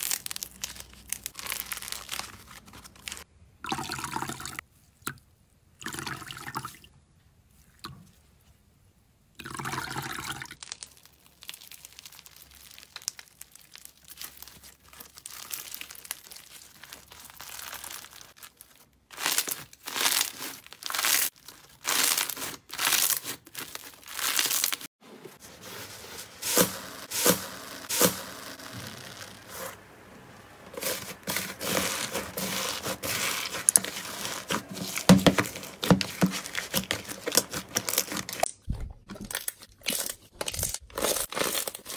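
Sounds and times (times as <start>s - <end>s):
slime squishing and popping: 10.5s - 18.3s.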